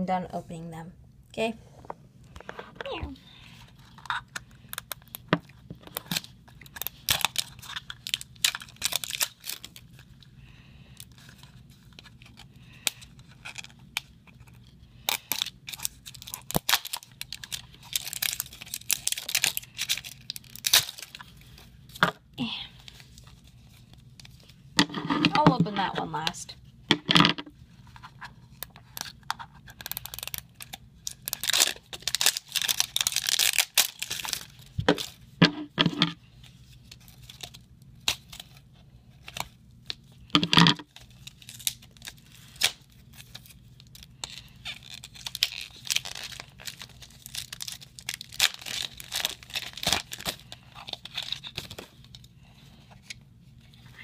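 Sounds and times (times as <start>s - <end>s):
packaging tearing and crinkling: 3.8s - 10.3s, 11.0s - 22.0s, 28.1s - 36.2s, 36.8s - 38.6s, 39.2s - 52.3s.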